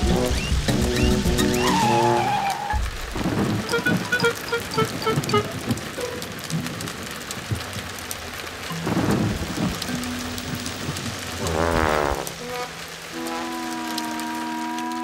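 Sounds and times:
quick descending musical notes: 0:00.0 - 0:02.8, 0:03.6 - 0:05.6
thunder rumbling: 0:00.0 - 0:08.1, 0:08.8 - 0:15.0
heavy rainfall: 0:00.0 - 0:15.0.

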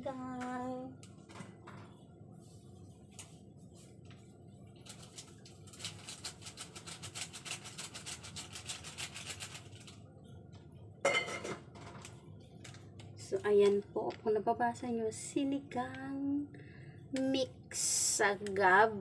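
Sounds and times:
powder rustling and scraping: 0:04.8 - 0:10.0.

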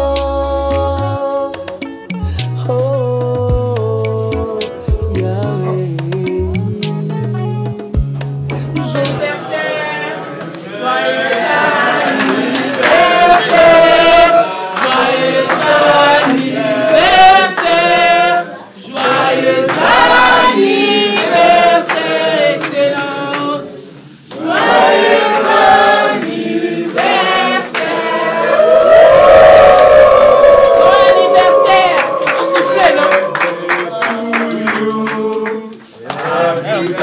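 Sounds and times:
voices singing in chorus: 0:08.8 - 0:37.0.

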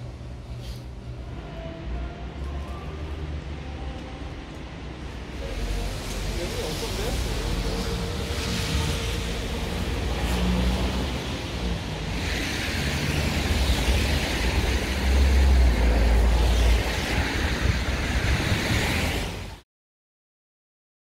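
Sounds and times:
passing traffic rumble: 0:00.0 - 0:19.6.

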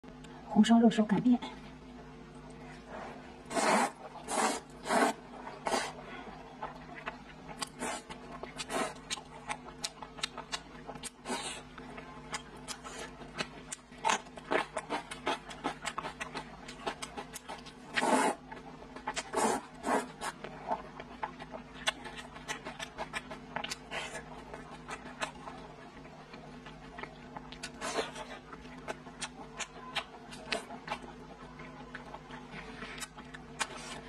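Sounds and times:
faint steady hum: 0:00.0 - 0:34.0
noodle slurping: 0:03.5 - 0:06.0, 0:17.9 - 0:18.4, 0:19.2 - 0:20.4
wet chewing and lip-smacking: 0:03.5 - 0:34.0.

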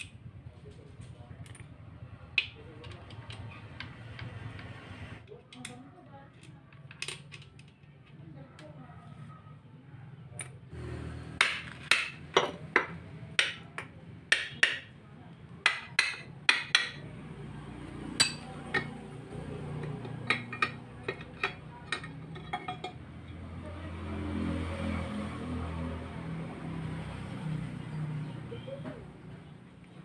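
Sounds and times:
metal-on-metal taps: 0:19.8 - 0:23.0.

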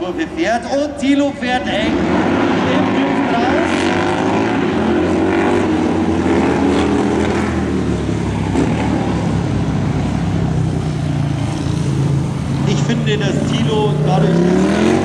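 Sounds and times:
motorcycle engines revving: 0:00.0 - 0:15.0.

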